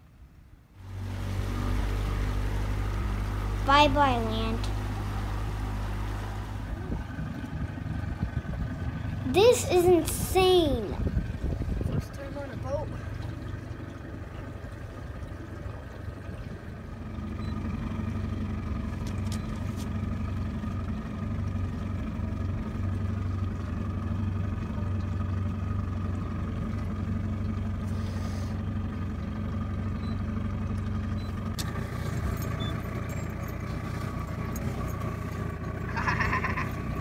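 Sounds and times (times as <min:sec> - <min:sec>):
motorboat engine droning: 0:00.2 - 0:37.0.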